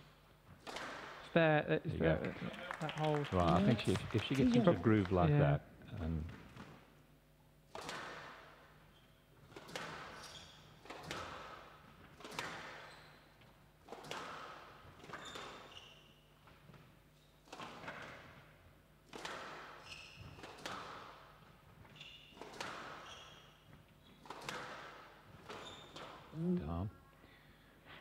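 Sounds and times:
squash ball cracking off walls: 0.5 - 1.2, 7.7 - 8.6, 9.5 - 10.2, 10.8 - 12.9, 13.8 - 15.6, 17.5 - 18.4, 19.1 - 21.4, 22.2 - 23.1, 24.2 - 26.4
shoes squeaking on wooden floor: 15.1 - 16.0, 19.8 - 20.7, 21.6 - 24.4, 25.3 - 26.4.

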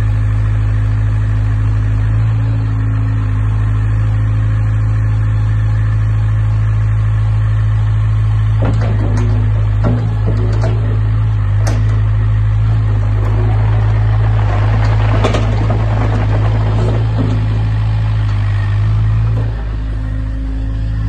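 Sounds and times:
excavator diesel engine running: 0.0 - 21.0
short clicks and knocks: 8.6 - 18.6.

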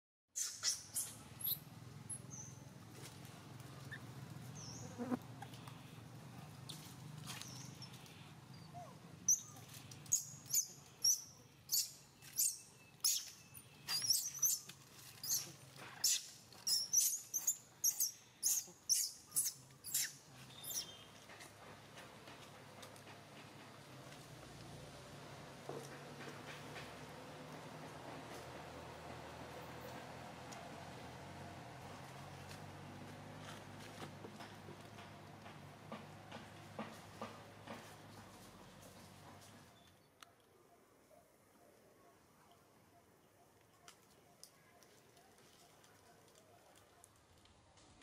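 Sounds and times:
baby monkey squeaking: 10.1 - 13.3, 13.9 - 20.9.

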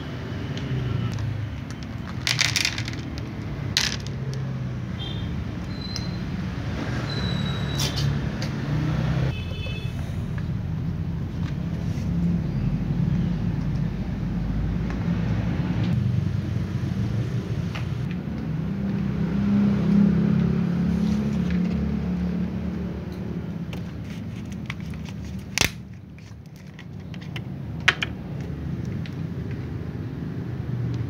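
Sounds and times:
vehicle engine rumbling: 0.0 - 6.3.

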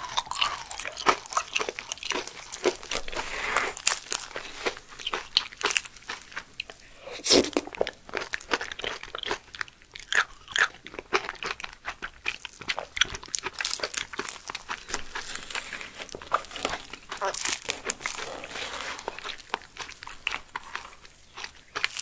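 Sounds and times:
close chewing and mouth sounds: 0.0 - 22.0
metal spoon scraping gel: 14.8 - 19.4.

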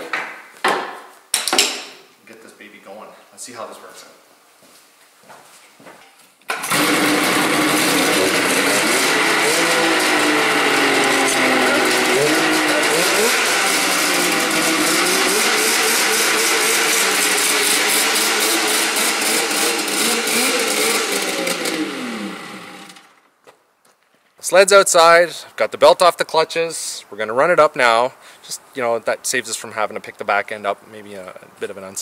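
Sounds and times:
snowmobile two-stroke engine revving: 6.6 - 23.1.

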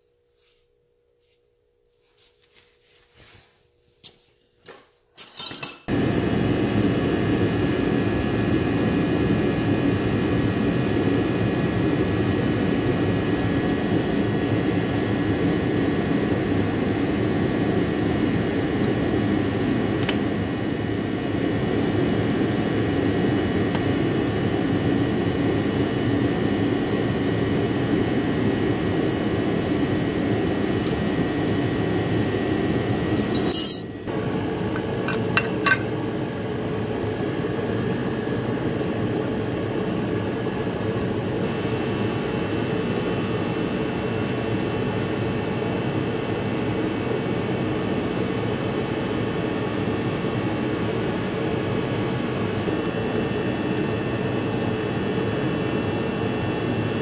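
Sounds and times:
metal hand tools clinking: 5.2 - 5.9, 33.2 - 34.0
fan machine droning: 5.8 - 57.0.

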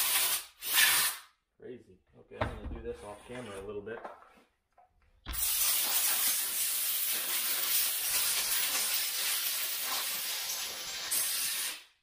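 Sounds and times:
compressed air hissing: 0.0 - 1.3, 5.3 - 12.0.

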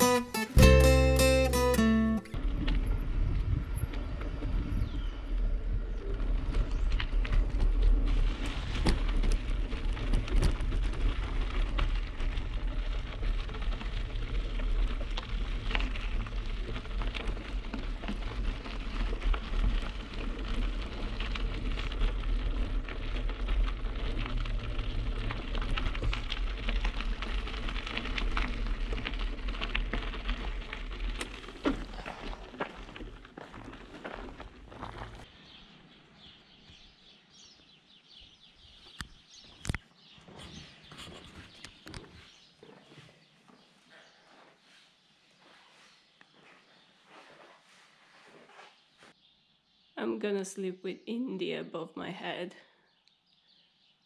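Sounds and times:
wind rumbling on microphone: 2.3 - 37.6
bicycle tyres rolling over gravel: 2.3 - 48.9.

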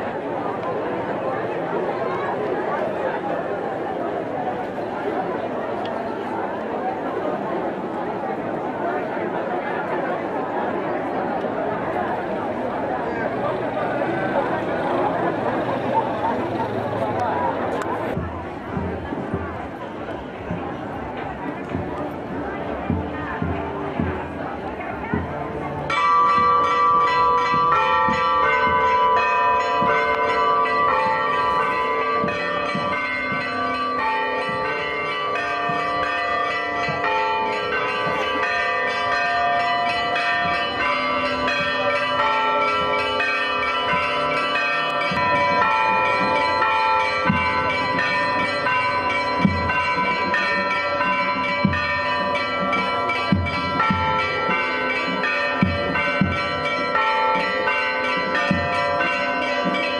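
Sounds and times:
church bells ringing: 20.6 - 59.9.

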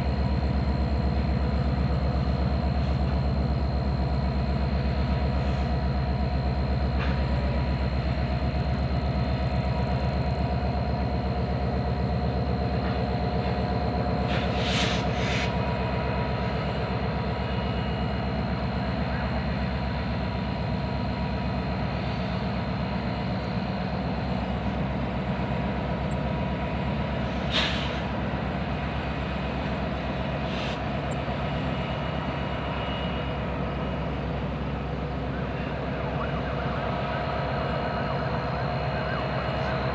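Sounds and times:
diesel locomotive engine drone: 0.0 - 39.9
short hisses: 14.3 - 15.6, 27.4 - 28.1, 30.4 - 30.8.

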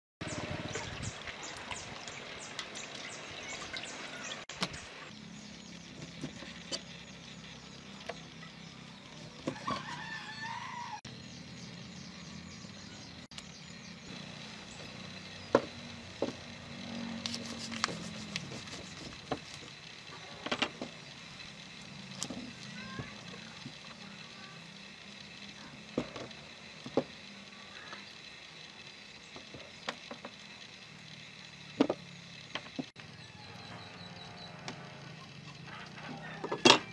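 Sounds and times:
low drawn-out hum: 0.2 - 36.9
rooster crowing: 9.5 - 11.1.

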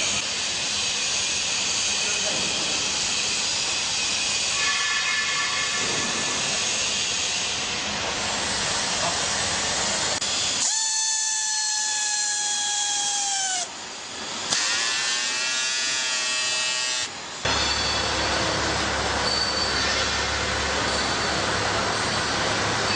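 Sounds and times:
high machine whine: 0.0 - 10.6, 13.6 - 22.9
lower machine whine: 17.0 - 22.9.

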